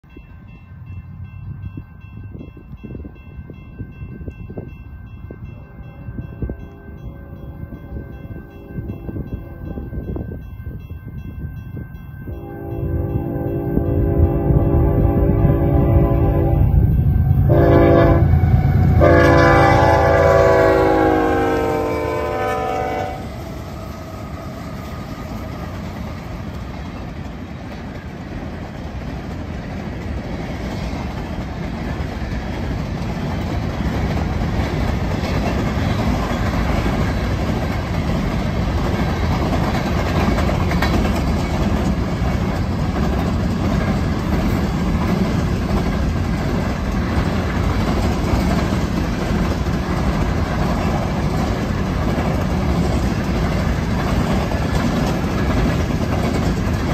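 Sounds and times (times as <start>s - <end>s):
train wheels on rails: 0.0s - 56.9s
locomotive horn: 12.3s - 24.6s.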